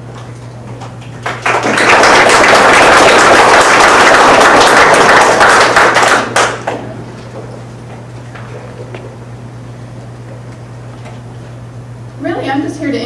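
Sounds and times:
low electrical hum: 0.0 - 13.0
audience applauding: 1.0 - 6.9.

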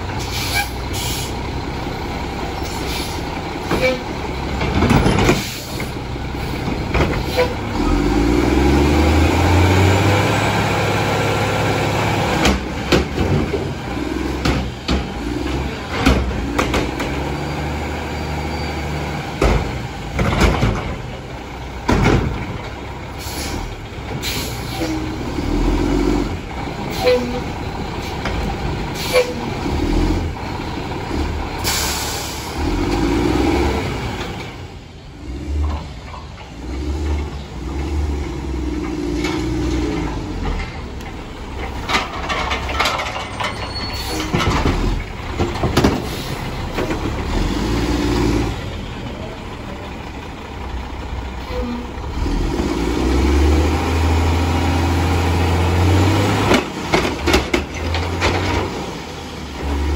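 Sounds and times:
diesel truck engine revving: 0.0 - 42.8, 43.7 - 59.9
air brake hiss: 0.2 - 1.4, 2.6 - 3.2, 23.2 - 25.0, 31.6 - 32.6.

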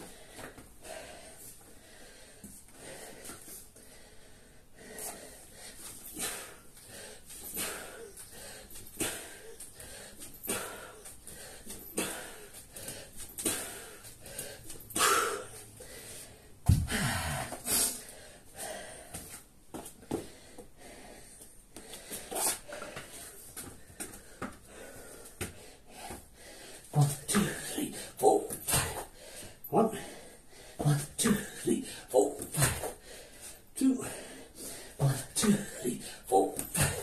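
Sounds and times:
man breathing heavily: 0.0 - 37.0
kettlebell thud on floor mat: 16.6 - 17.0.

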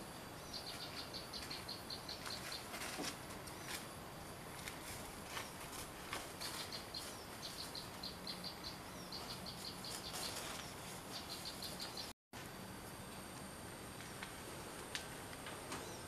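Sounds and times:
warbler calling high short notes: 6.5 - 12.1.

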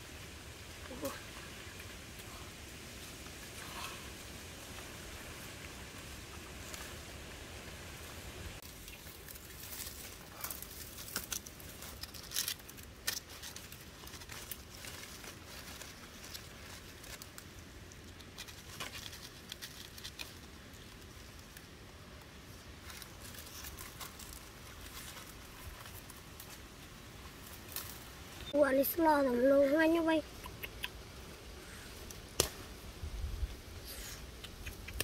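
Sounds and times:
rustling through undergrowth: 0.0 - 35.0
twigs snapping: 8.6 - 21.7, 27.4 - 28.1, 32.0 - 32.7.

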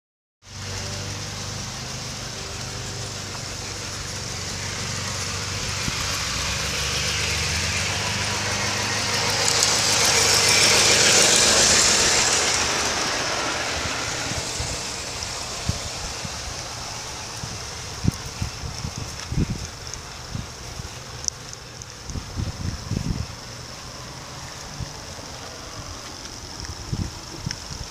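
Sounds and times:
model train motor hum: 0.5 - 27.9
rolling hiss of wheels: 0.5 - 27.9.

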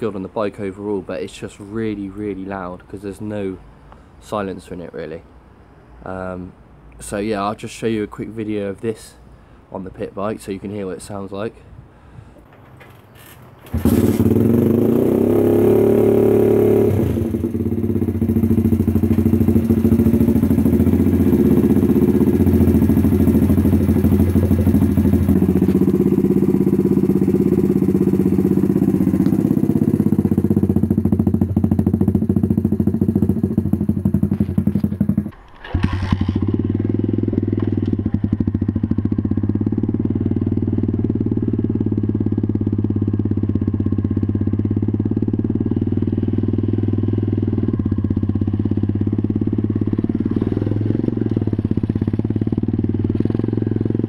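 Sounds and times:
motorbike kick-started: 12.4 - 15.4, 18.6 - 31.1, 34.0 - 39.2
motorbike engine running loud: 13.7 - 54.0.

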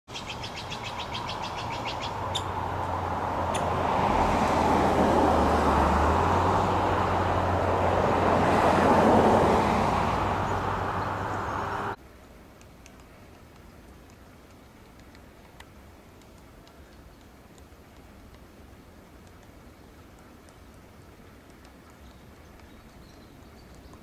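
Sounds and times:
road vehicle passing: 0.2 - 12.0
sharp ticks: 12.6 - 18.6, 19.2 - 24.0.

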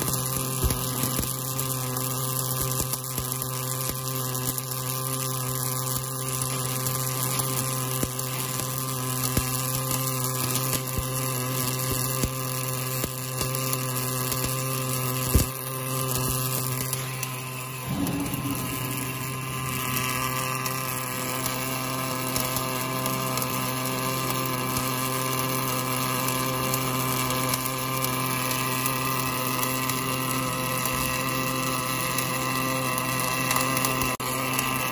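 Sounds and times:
welding arc hissing: 0.0 - 34.9
sharp crack: 16.6 - 21.9
electrical hum: 16.7 - 22.0.

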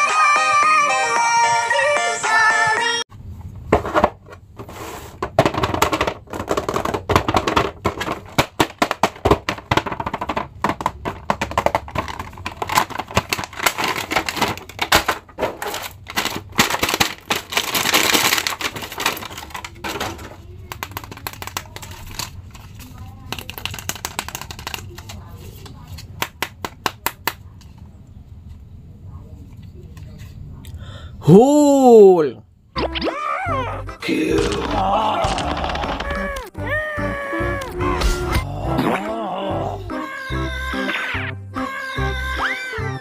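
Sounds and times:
cardboard and plastic packaging crinkling: 5.4 - 25.6.

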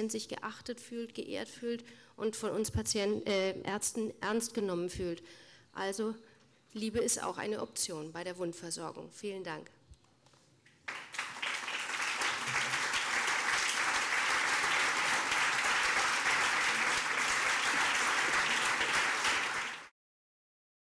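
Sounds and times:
audience applauding: 10.9 - 19.9.

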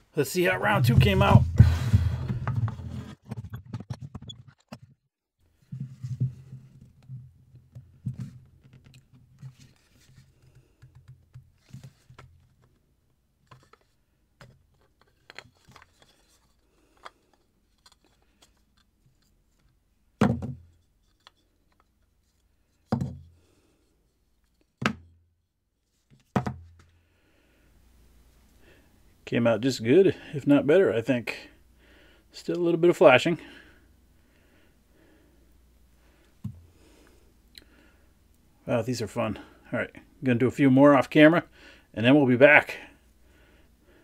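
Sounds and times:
plastic blocks clicking and rubbing: 13.4 - 19.8.

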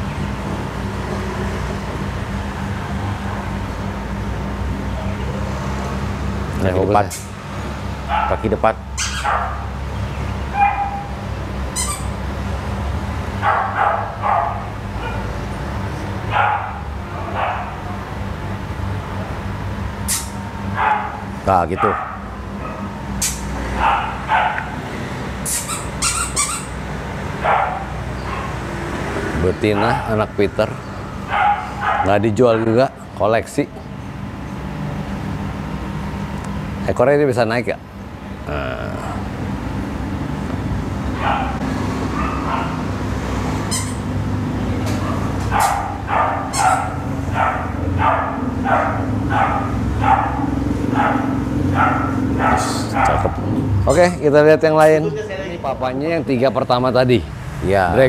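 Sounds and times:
steady low hum: 0.0 - 58.0
dog barking: 8.1 - 9.7, 10.5 - 11.2, 13.4 - 15.4, 16.3 - 18.0, 20.8 - 24.8, 27.4 - 28.7, 29.7 - 30.1, 31.2 - 33.0, 41.1 - 42.9, 44.9 - 53.5.

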